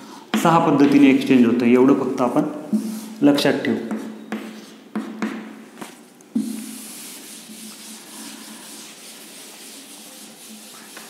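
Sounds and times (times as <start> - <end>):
board duster wiping chalkboard: 2.1 - 5.2, 5.8 - 11.0
chalk strokes on chalkboard: 2.2 - 5.4, 6.4 - 11.0.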